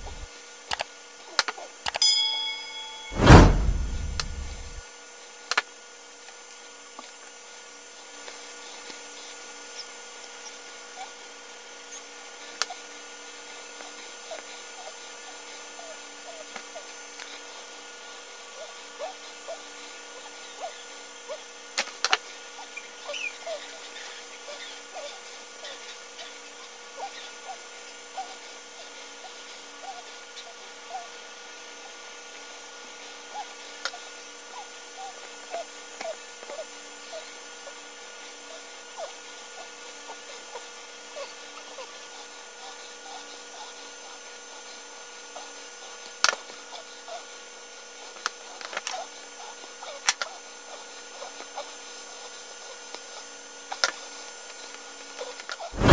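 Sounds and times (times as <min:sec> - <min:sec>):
steady background hum: 0:00.0 - 0:00.3
background hiss and hum: 0:00.0 - 0:04.8, 0:06.2 - 0:55.9.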